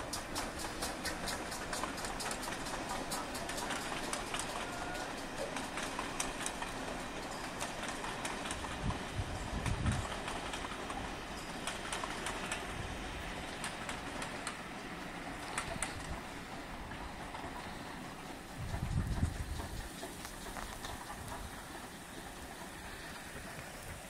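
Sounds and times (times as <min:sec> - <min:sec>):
steam train rumbling: 0:00.0 - 0:24.0.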